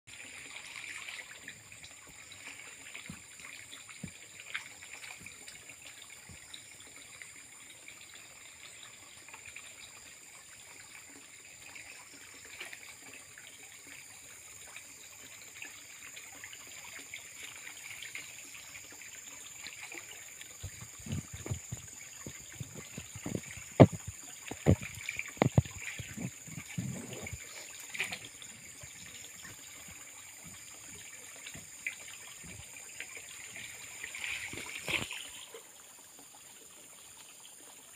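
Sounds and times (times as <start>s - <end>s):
water sloshing and splashing: 0.1s - 7.2s, 14.7s - 36.5s.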